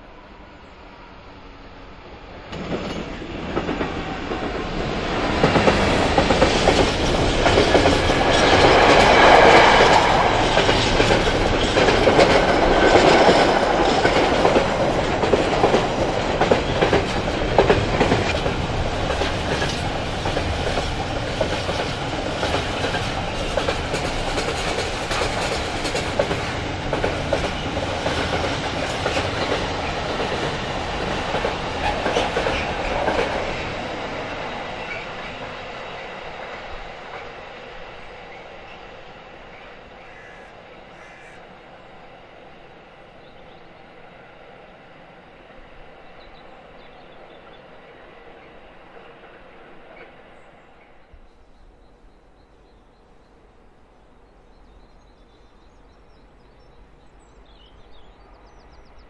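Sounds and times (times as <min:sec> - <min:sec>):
diesel locomotive passing: 0:00.0 - 0:59.0
train wheels clattering on track: 0:02.4 - 0:41.4, 0:43.2 - 0:51.1.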